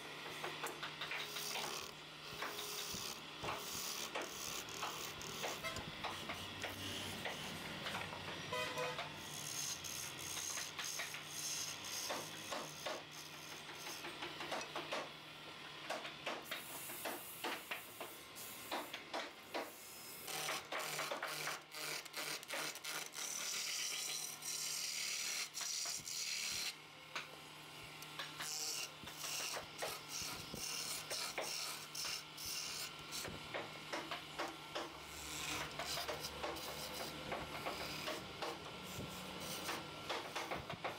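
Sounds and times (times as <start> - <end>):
tool scraping spinning wood: 0.0 - 15.1, 28.2 - 40.9
lathe motor hum: 0.0 - 15.7, 27.2 - 40.9.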